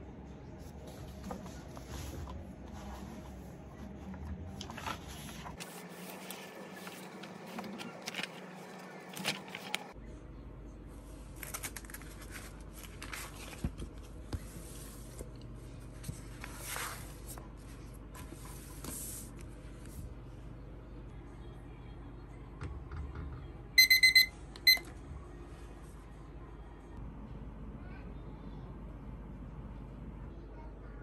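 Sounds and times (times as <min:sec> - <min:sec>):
book pages turning: 0:00.7 - 0:10.0, 0:11.2 - 0:20.0
paper rustling: 0:04.5 - 0:10.0, 0:11.3 - 0:19.9.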